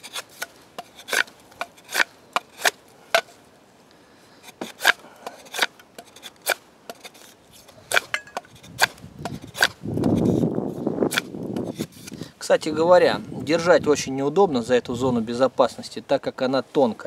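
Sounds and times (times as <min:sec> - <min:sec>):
blade chopping wood: 0:00.0 - 0:03.3, 0:07.9 - 0:10.4.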